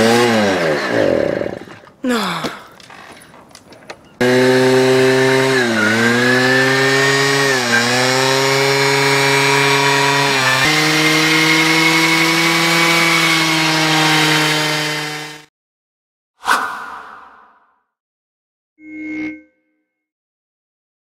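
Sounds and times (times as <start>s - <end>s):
moped engine revving high: 0.0s - 1.6s, 4.2s - 15.5s.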